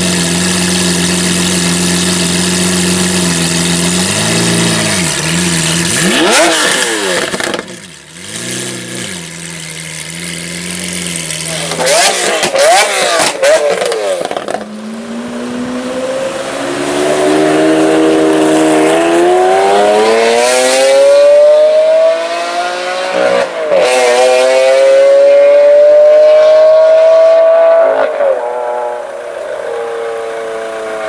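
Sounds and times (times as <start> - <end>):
sports car engine accelerating: 0.0 - 31.0.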